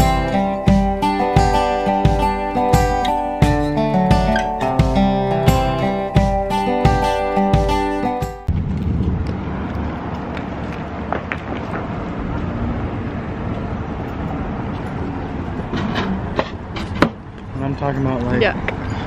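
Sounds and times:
strumming guitar music: 0:00.0 - 0:08.5
outdoor traffic noise: 0:00.0 - 0:19.0
wind rumbling on microphone: 0:08.5 - 0:19.0.

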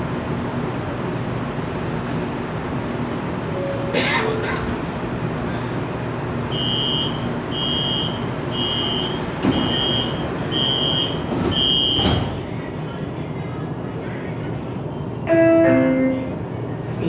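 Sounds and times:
train car hum: 0:00.0 - 0:17.0
sliding doors thudding shut: 0:09.4 - 0:09.9, 0:11.2 - 0:12.5.

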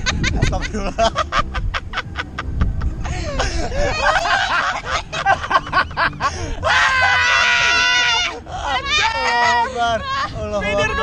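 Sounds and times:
low rumble: 0:00.0 - 0:06.9
young people laughing: 0:00.0 - 0:11.0.

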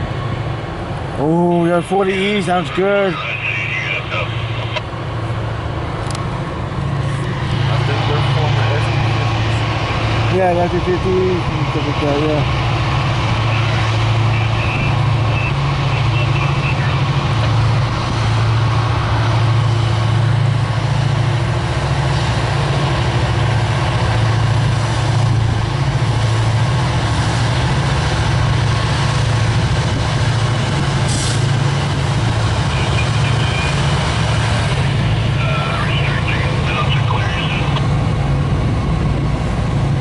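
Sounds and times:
low diesel locomotive drone: 0:00.0 - 0:40.0
train wheels on rails: 0:17.1 - 0:35.6.

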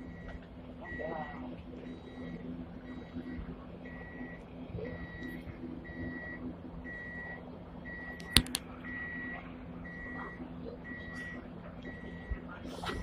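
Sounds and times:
sharp clicks: 0:08.2 - 0:08.6.

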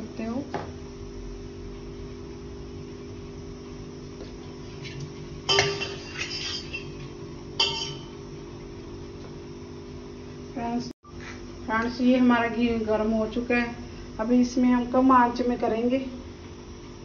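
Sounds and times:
steady low hum: 0:00.0 - 0:17.0
kitchen utensils clinking: 0:05.5 - 0:08.2.

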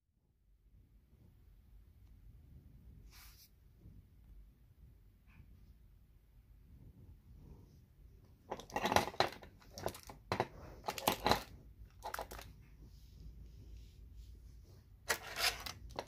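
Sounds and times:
jewelry rustling and clicking: 0:08.4 - 0:12.7, 0:15.0 - 0:16.0.

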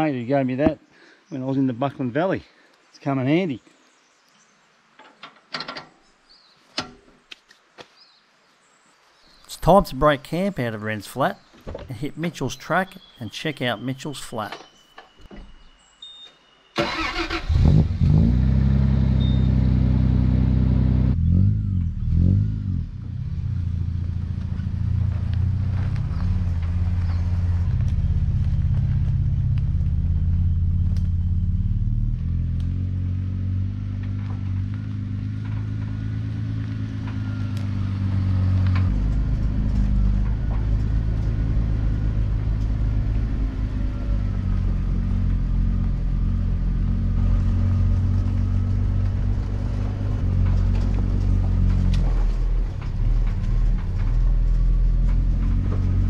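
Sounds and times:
vehicle engine revving while driving: 0:17.0 - 0:56.0.

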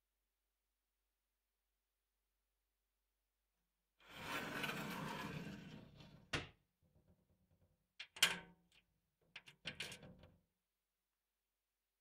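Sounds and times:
glass door scraping slide: 0:04.1 - 0:06.2.

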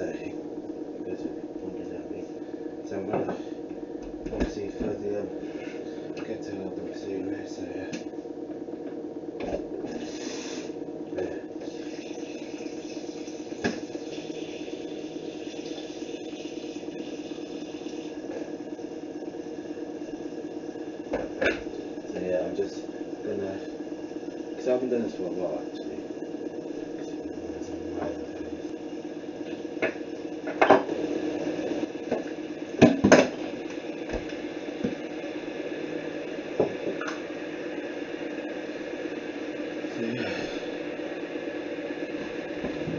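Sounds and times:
electric kettle heating: 0:00.0 - 0:42.9
low fluttering rumble: 0:26.8 - 0:29.4.

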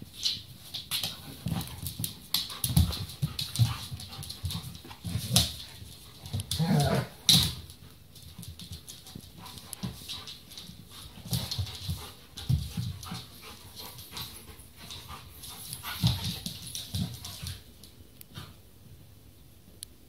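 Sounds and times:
dogs growling and snarling: 0:06.5 - 0:07.3.

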